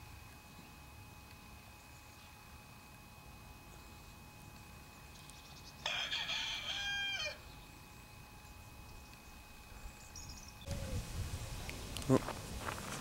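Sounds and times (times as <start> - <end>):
rooster crowing: 5.8 - 7.4.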